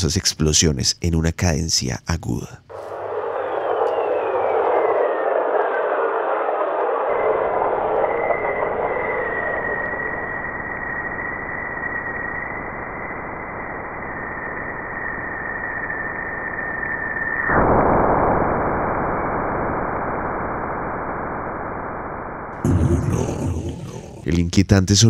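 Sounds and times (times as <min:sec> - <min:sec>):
rush of noise: 0:02.7 - 0:14.9, 0:22.6 - 0:24.4
high whistle: 0:02.7 - 0:17.9.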